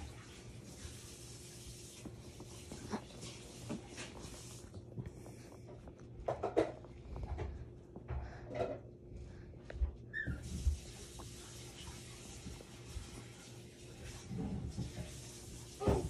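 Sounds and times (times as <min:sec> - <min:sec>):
bedding rustling: 0:00.0 - 0:08.1.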